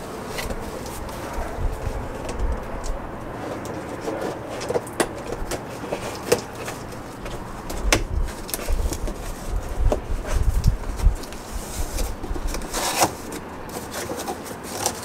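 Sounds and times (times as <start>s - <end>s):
packaging rustling and rubbing: 0.0s - 15.0s
packaging clicks and knocks: 3.5s - 11.4s.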